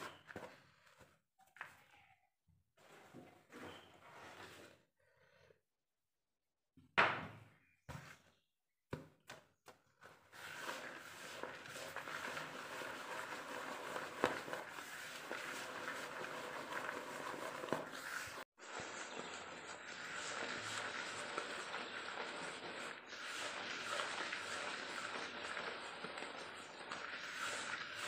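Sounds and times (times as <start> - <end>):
hand rustling and scraping mixture: 9.6 - 28.0.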